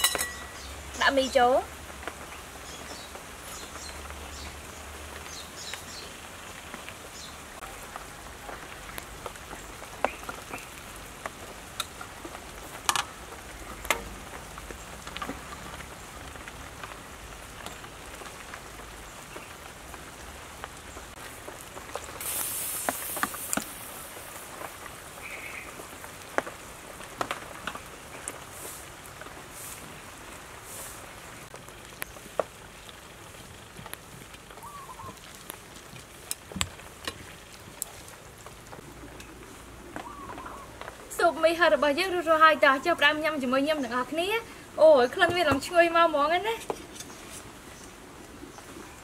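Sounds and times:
soup simmering and bubbling: 0:31.0 - 0:41.1.

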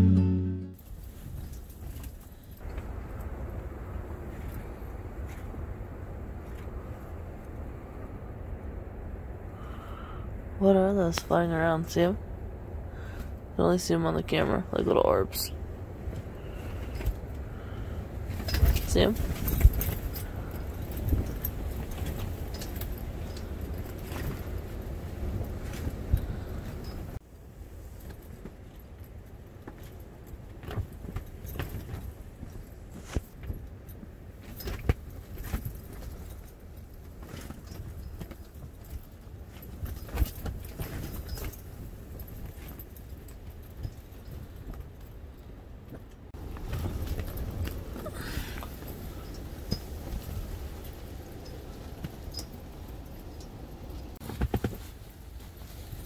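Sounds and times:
wind rumbling: 0:00.8 - 0:54.2
tent fabric snapping and rattling: 0:18.2 - 0:27.2, 0:27.9 - 0:44.8, 0:54.1 - 0:56.0.

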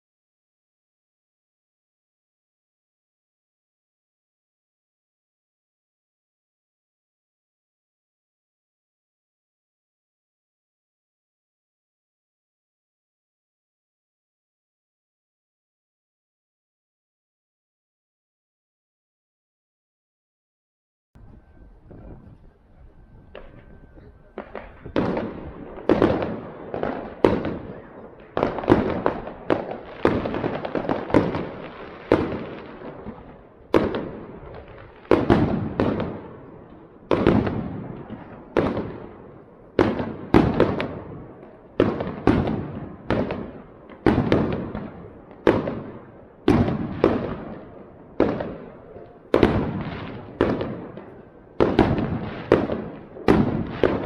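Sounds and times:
fireworks bursting with sharp bangs: 0:21.4 - 0:54.0.

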